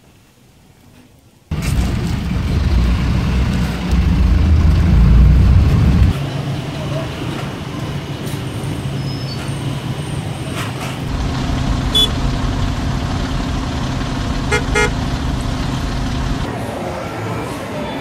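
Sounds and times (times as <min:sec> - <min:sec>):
vehicle engines running: 0:01.5 - 0:18.0
car horn toots: 0:11.9 - 0:12.2, 0:14.5 - 0:15.0.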